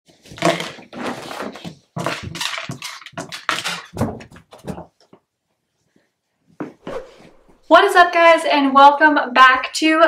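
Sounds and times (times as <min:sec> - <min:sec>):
dog chewing plastic frisbee: 0:00.3 - 0:04.0.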